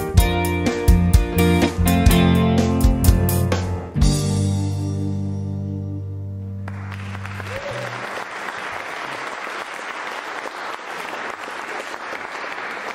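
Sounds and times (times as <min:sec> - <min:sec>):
audience applause: 0:06.6 - 0:12.9.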